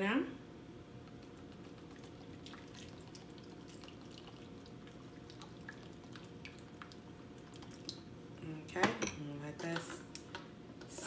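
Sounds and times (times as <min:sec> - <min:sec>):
liquid trickling into bowl: 0:01.3 - 0:08.1.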